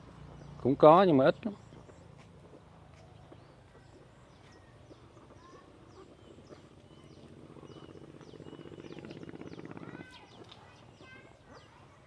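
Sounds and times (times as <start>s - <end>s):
birds chirping: 0.0s - 12.0s.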